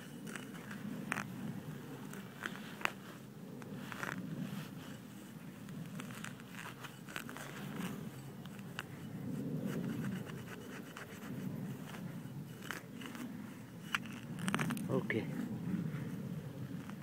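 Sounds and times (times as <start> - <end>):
grass rustling: 0.0 - 17.0
hand digger scraping soil: 0.0 - 17.0.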